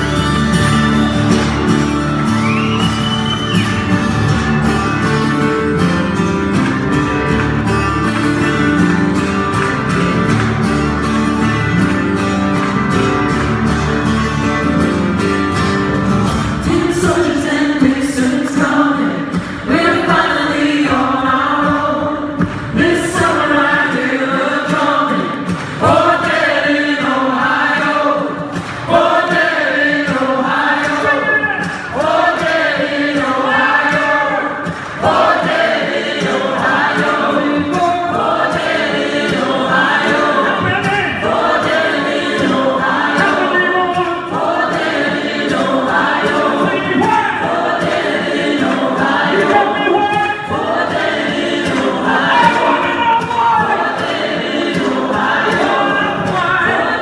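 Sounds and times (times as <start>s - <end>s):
strummed acoustic guitars: 0.0s - 57.0s
voices singing in harmony: 16.4s - 57.0s.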